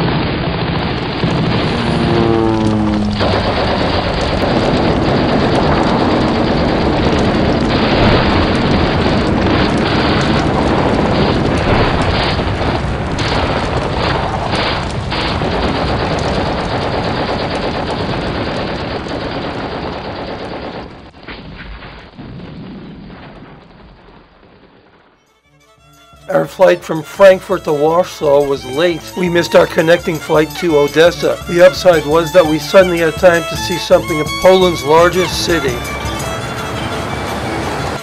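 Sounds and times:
machine-gun fire: 0:00.0 - 0:24.1
explosions: 0:00.0 - 0:25.2.

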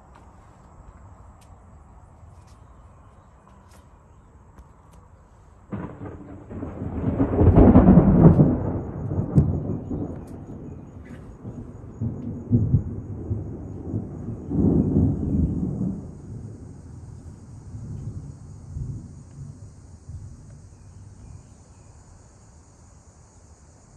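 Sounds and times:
thunder clap and rumble: 0:05.7 - 0:21.4.

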